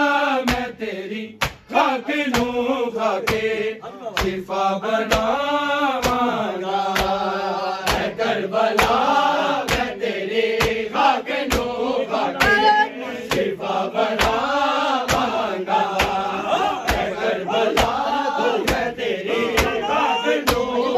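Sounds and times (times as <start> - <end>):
men chanting in unison: 0.0 - 20.9
higher voice rising above group: 12.4 - 13.0, 19.3 - 20.6.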